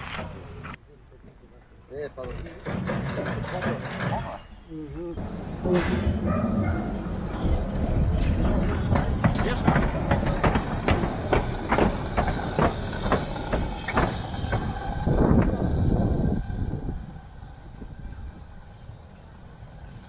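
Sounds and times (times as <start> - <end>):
steam locomotive exhaust beats: 5.2 - 20.0
steam hissing: 8.6 - 20.0.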